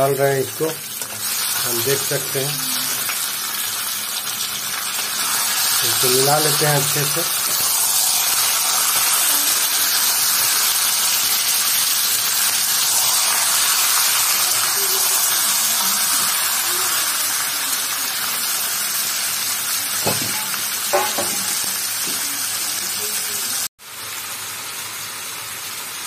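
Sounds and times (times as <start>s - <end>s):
chicken sizzling in hot oil: 0.0s - 26.0s
metal spatula knocking on pan: 20.0s - 22.2s.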